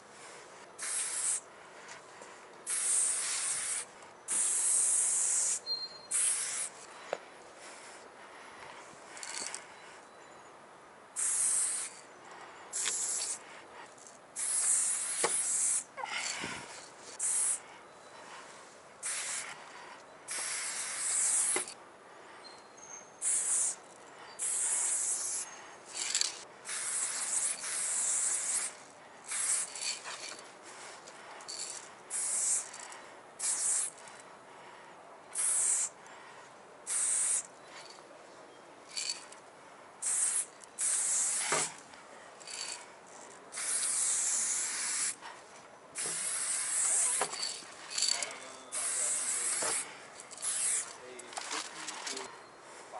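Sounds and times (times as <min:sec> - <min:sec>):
spray paint can hissing: 0:00.8 - 0:01.4, 0:02.6 - 0:06.9, 0:11.2 - 0:12.0, 0:12.7 - 0:13.4, 0:14.4 - 0:15.9, 0:17.1 - 0:17.6, 0:19.0 - 0:19.6, 0:20.3 - 0:21.8, 0:23.2 - 0:23.8, 0:24.4 - 0:30.9, 0:31.5 - 0:34.1, 0:35.3 - 0:36.0, 0:36.9 - 0:37.5, 0:38.9 - 0:39.3, 0:40.0 - 0:41.8, 0:42.4 - 0:42.8, 0:43.5 - 0:45.2, 0:46.0 - 0:51.0.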